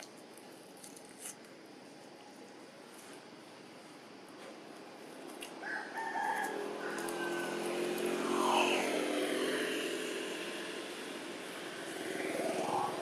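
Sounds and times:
passing vehicle hum: 0:05.2 - 0:13.0
rooster crowing: 0:05.6 - 0:08.9.

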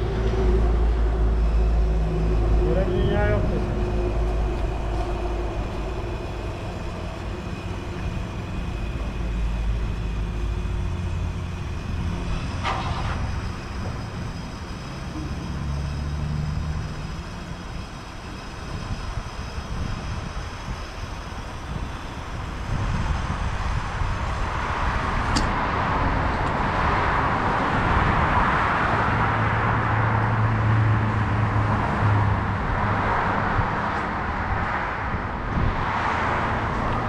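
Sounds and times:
low hum: 0:00.0 - 0:26.7
low machine rumble: 0:00.0 - 0:28.3.

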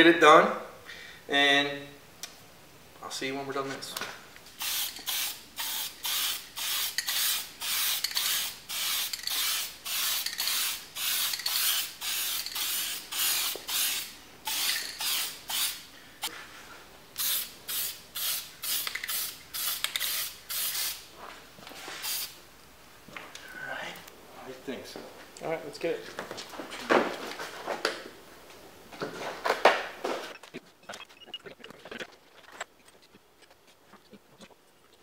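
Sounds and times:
spray paint can hissing bursts: 0:04.6 - 0:15.9, 0:17.2 - 0:21.1, 0:22.0 - 0:22.4.

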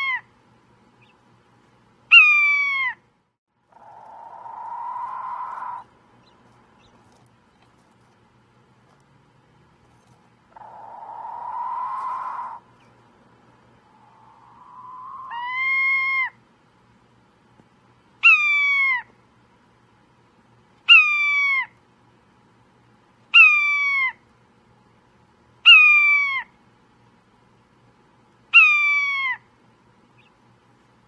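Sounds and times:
caged bird meow-like call: 0:03.8 - 0:05.9, 0:10.6 - 0:12.6, 0:13.9 - 0:16.4, 0:28.6 - 0:29.4.

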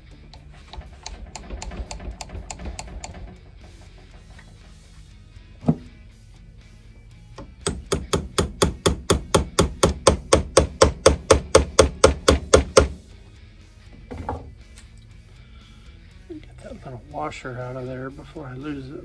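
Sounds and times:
hammer knocking on screwdriver handle: 0:07.4 - 0:12.9.

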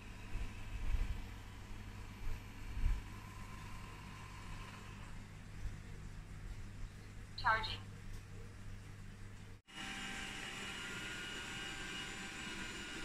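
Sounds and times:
robot vacuum motor hum: 0:09.7 - 0:13.0.

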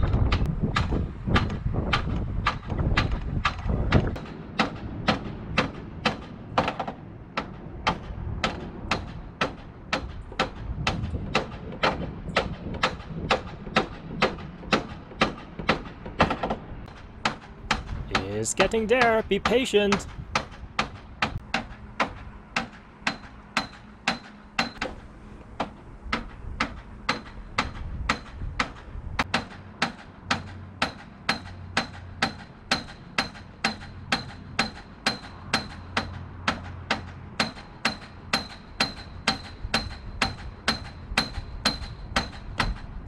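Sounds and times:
metal bolt hammering metal spike: 0:29.3 - 0:42.9.

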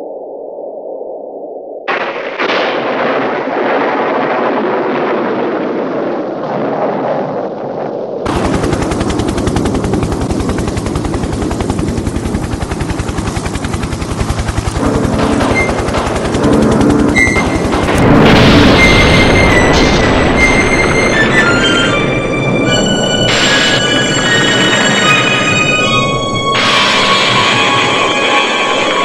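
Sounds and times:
helicopter rotor chopping: 0:08.3 - 0:29.0
low steady tones: 0:08.3 - 0:29.0
rushing noise: 0:08.3 - 0:29.0.

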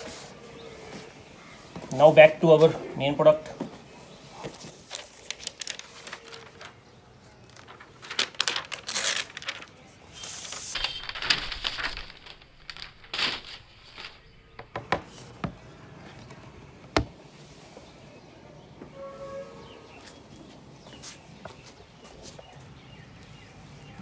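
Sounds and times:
paper wrap rustling and crinkling: 0:04.3 - 0:15.4.

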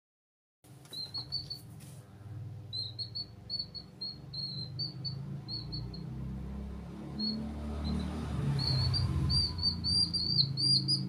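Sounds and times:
chicks peeping: 0:00.9 - 0:01.8, 0:02.7 - 0:06.2, 0:07.1 - 0:11.0.

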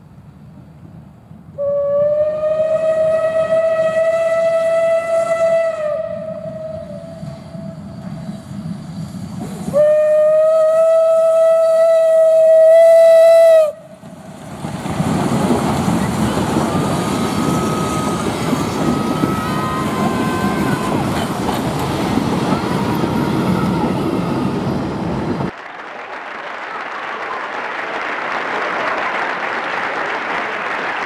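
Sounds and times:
train wheels on rails: 0:00.0 - 0:25.7
steam locomotive whistle: 0:01.6 - 0:14.0, 0:16.6 - 0:21.6.

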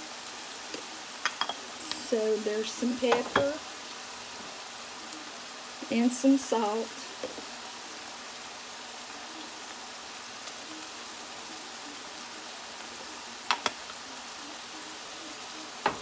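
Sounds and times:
meat sizzling in a skillet: 0:00.0 - 0:16.0.

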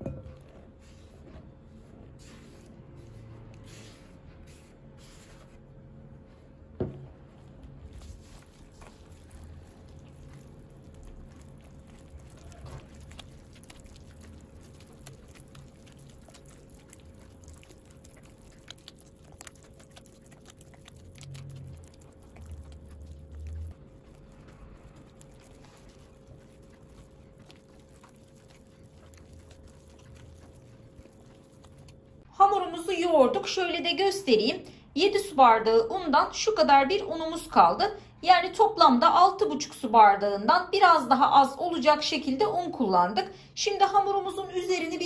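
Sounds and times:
dough squishing: 0:00.0 - 0:34.6.

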